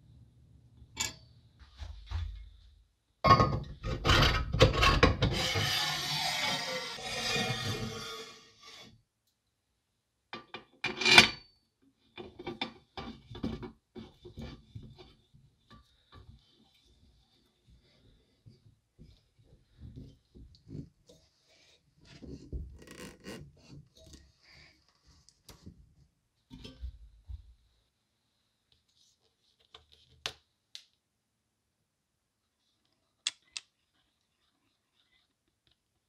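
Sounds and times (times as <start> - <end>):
rasping scrape: 3.9 - 8.9.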